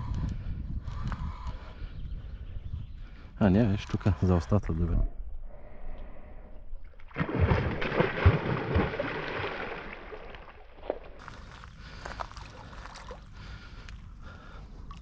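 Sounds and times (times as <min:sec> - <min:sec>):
fish splashing and slapping: 0:07.0 - 0:13.3.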